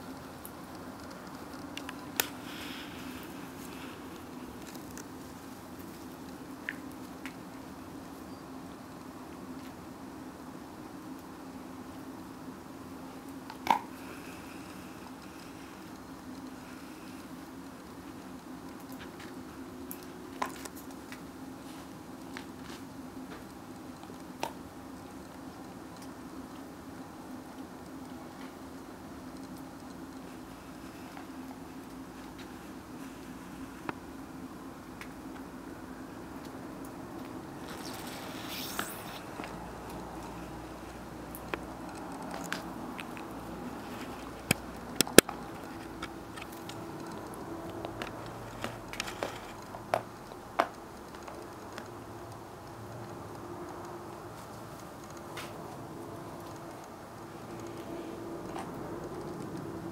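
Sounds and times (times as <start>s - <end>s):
steady background hiss: 0.0s - 59.9s
steady low hum: 0.0s - 59.9s
puppy chewing crunching clicks: 0.1s - 2.4s, 3.1s - 7.6s, 13.4s - 16.6s, 17.2s - 21.3s, 36.4s - 59.9s
dog chewing crunchy treat: 37.6s - 50.4s.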